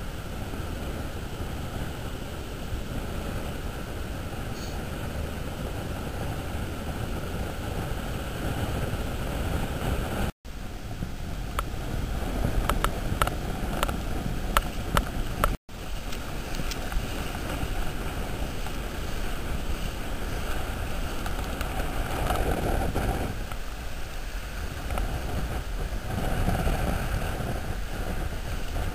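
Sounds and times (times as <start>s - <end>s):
surf washing over beach: 0.0s - 28.9s
wind on microphone: 0.0s - 28.9s.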